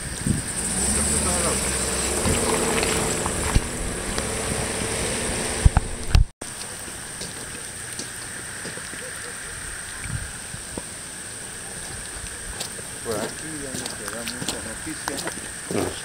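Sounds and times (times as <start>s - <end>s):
outdoor rushing noise: 0.0s - 7.2s
steady hiss: 0.0s - 16.0s.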